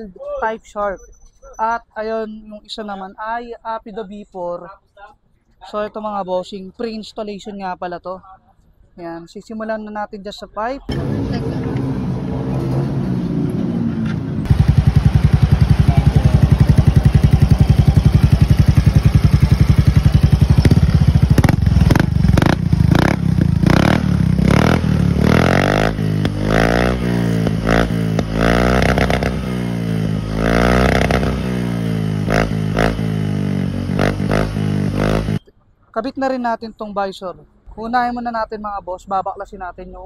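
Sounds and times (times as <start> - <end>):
scooter engine revving: 10.9 - 35.4.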